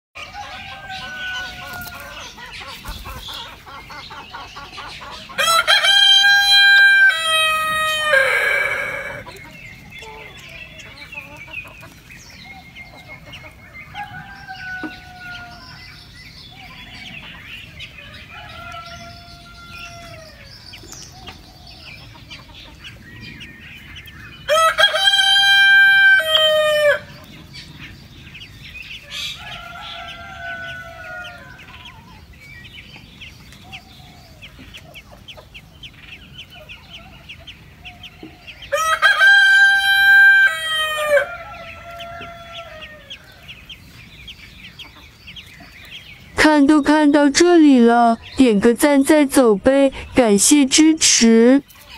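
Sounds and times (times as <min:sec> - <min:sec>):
rooster crowing: 0:00.2 - 0:02.2, 0:05.4 - 0:09.3, 0:13.9 - 0:15.9, 0:18.0 - 0:20.5, 0:24.5 - 0:27.1, 0:29.2 - 0:31.8, 0:38.7 - 0:43.5.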